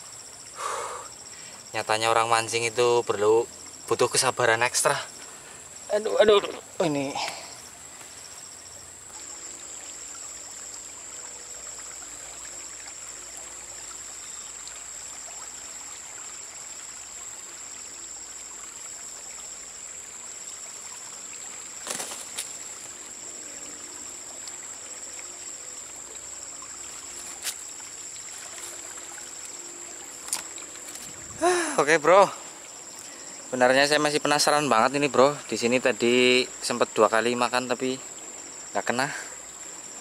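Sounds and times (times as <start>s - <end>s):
high insect drone: 0.0s - 40.0s
shallow river trickling: 0.0s - 40.0s.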